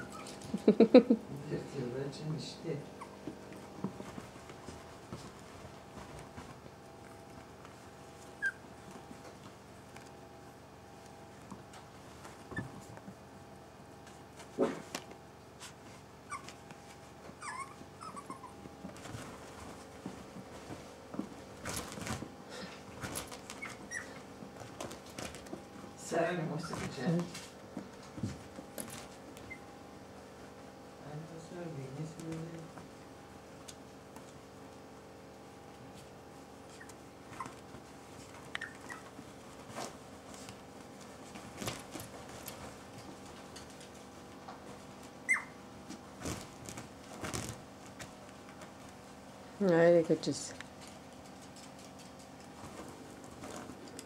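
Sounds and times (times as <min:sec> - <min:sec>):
puppies whimpering: 0:00.0 - 0:00.6, 0:02.9 - 0:03.4, 0:08.4 - 0:08.7, 0:17.3 - 0:18.7, 0:23.5 - 0:24.3, 0:38.6 - 0:39.1, 0:45.2 - 0:45.6
steady low hum: 0:00.0 - 0:54.0
paws bumping and tapping: 0:02.9 - 0:26.0, 0:26.6 - 0:30.6, 0:32.1 - 0:49.3, 0:50.5 - 0:54.0
dog squeaks: 0:17.4 - 0:18.6, 0:23.6 - 0:24.2, 0:45.3 - 0:45.6.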